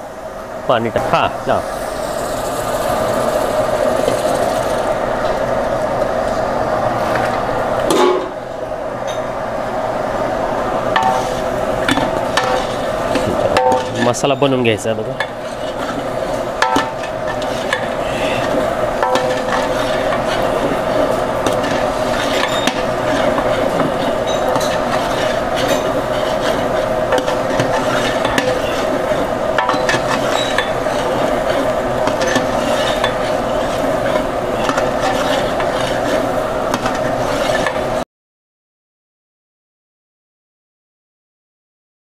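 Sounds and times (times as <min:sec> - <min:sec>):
food sizzling: 0:00.7 - 0:05.4, 0:10.8 - 0:38.0
spoon scraping pot: 0:15.2 - 0:37.9.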